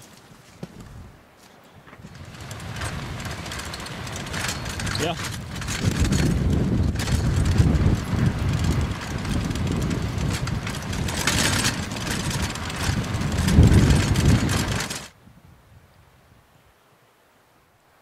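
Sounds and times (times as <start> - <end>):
rumble of travel on gravel: 0.0 - 15.2
wind buffeting microphone: 1.8 - 16.0.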